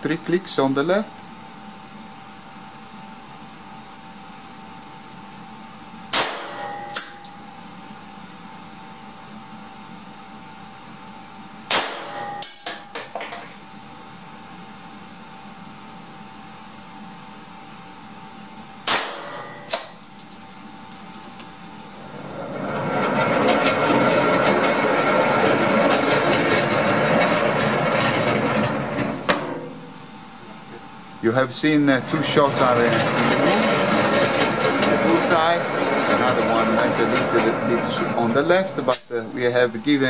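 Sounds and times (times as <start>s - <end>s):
electric target carrier running: 18.9s - 40.0s.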